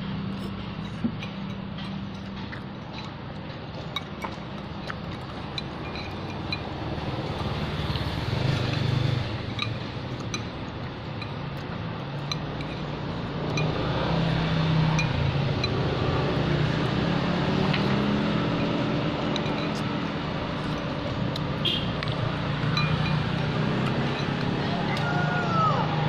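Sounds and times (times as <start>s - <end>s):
vehicle engine noise: 0.0s - 26.0s
cutlery clinking on ceramic bowl: 4.0s - 6.8s, 18.5s - 20.0s, 22.6s - 24.5s.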